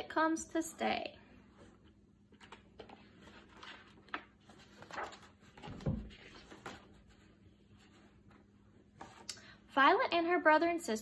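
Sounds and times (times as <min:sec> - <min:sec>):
paper pages rustling: 0:01.7 - 0:09.3.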